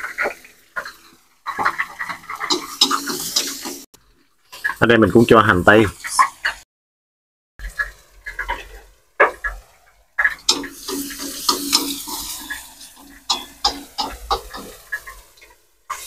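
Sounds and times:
onions sizzling in oil: 0.0s - 4.9s, 7.6s - 16.0s
spatula scraping a wok: 2.1s - 3.9s, 10.2s - 16.0s.

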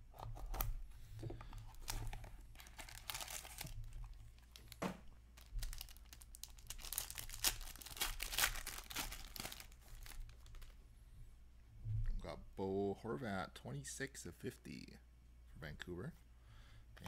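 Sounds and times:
wrapper tearing and crinkling: 1.8s - 4.8s, 5.4s - 10.7s.

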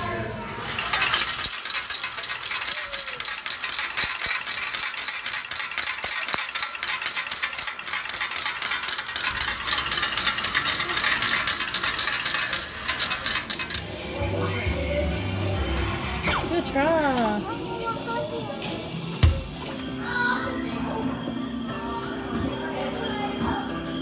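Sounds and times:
metal tokens clattering into cup: 0.7s - 13.9s.

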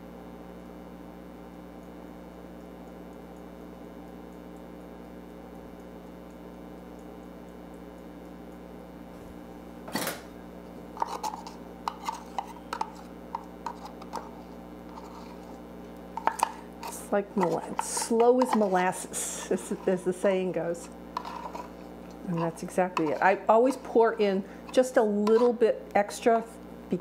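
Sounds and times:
steady low hum: 0.0s - 27.0s
spatula scraping measuring cup: 11.0s - 15.6s, 16.2s - 20.2s, 20.8s - 25.7s.

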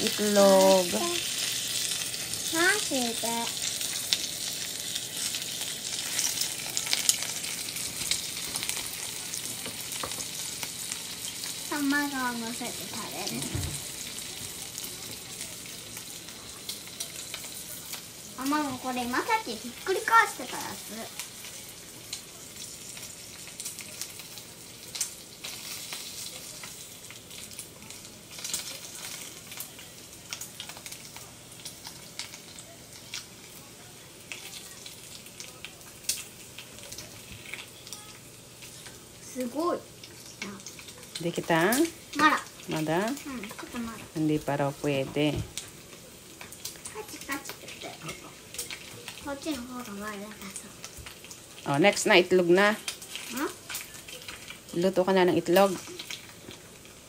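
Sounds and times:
bacon sizzling in a frying pan: 0.0s - 57.0s.

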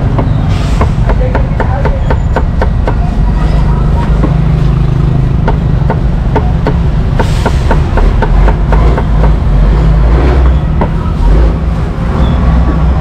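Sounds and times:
cleaver chopping on wooden board: 0.1s - 3.0s, 5.4s - 9.4s.

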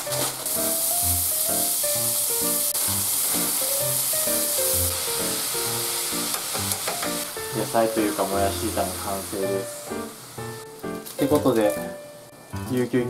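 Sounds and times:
bean sprouts sizzling in pan: 0.0s - 11.9s.

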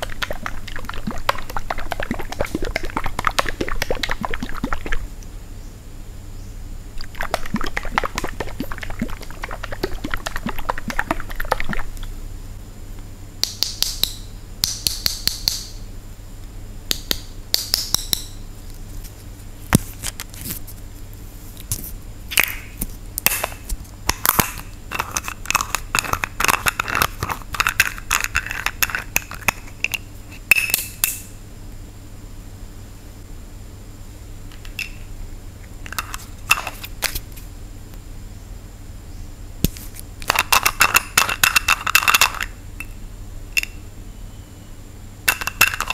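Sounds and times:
bottle being shaken: 0.0s - 5.0s, 7.0s - 12.0s, 24.9s - 30.0s, 45.3s - 45.9s.

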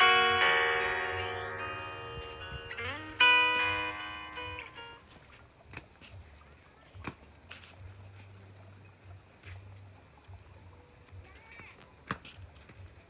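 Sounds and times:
thin steady high tone: 0.0s - 5.1s
wind rumble on microphone: 2.0s - 3.1s.

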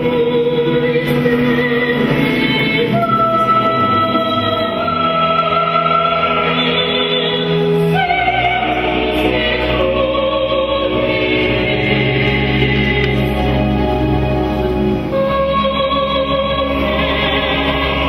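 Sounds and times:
choir singing held notes: 0.6s - 18.0s.

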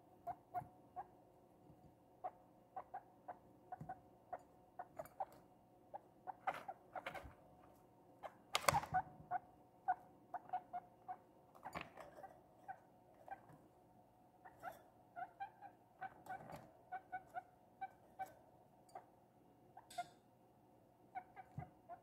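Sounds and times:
guinea pig squeaking: 0.2s - 1.2s, 2.2s - 7.4s, 8.2s - 13.5s, 14.4s - 19.1s, 19.8s - 20.1s, 21.1s - 22.0s.

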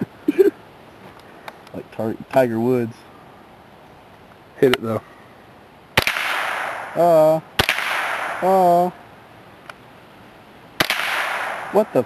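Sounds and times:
rifle shots with echo: 6.0s - 8.9s, 10.8s - 12.0s.

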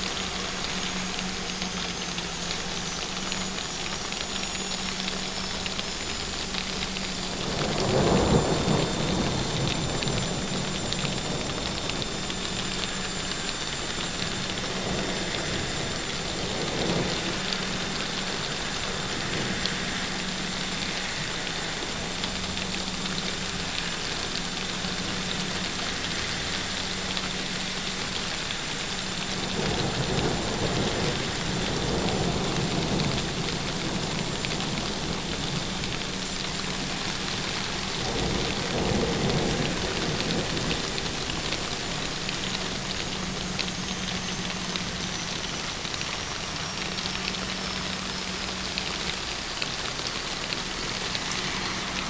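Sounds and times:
steady rain falling: 0.0s - 52.0s
thunder rolling: 7.3s - 20.4s, 29.3s - 45.5s.

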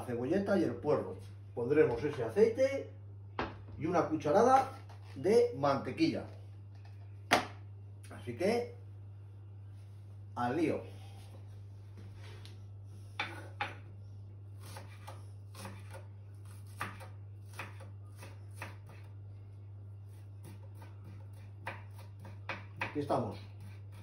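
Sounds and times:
steady low hum: 0.0s - 24.0s
knife chopping on wooden board: 13.2s - 13.9s, 14.6s - 19.1s, 20.1s - 24.0s.

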